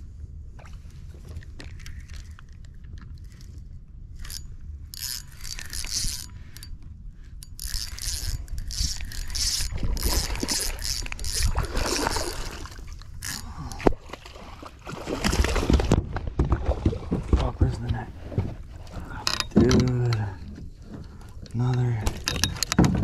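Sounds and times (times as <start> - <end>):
wind rumble on microphone: 0.0 - 23.0
fishing reel cranking: 4.2 - 6.8, 7.4 - 13.7
fish splashing: 9.6 - 13.0.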